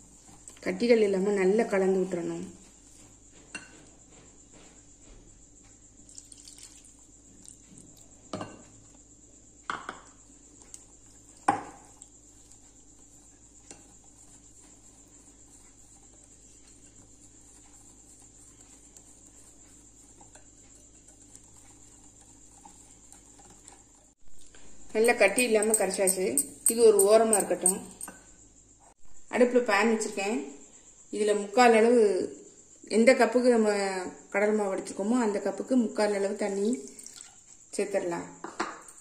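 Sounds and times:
whisk stirring batter: 10.3 - 24.2, 25.0 - 28.1
whisk clinking against glass bowl: 25.0 - 28.2.

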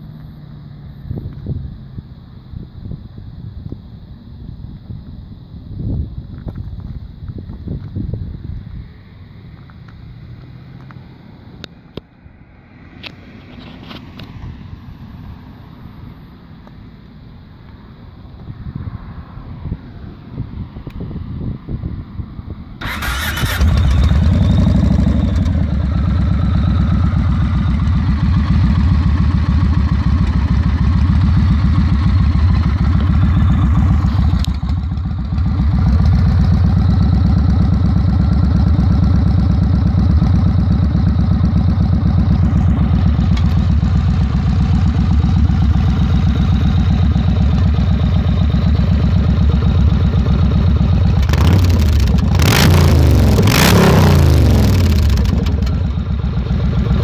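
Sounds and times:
motorcycle engine idling: 22.8 - 57.0.

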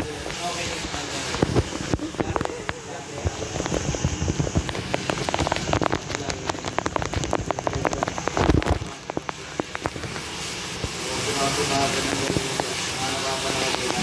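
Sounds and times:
fingers rubbing and tapping microphone: 0.2 - 10.3.

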